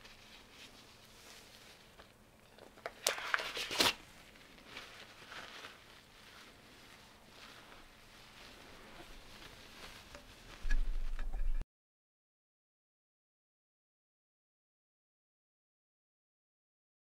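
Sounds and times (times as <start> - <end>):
nitrile gloves rustling and crinkling: 0.0 - 11.6.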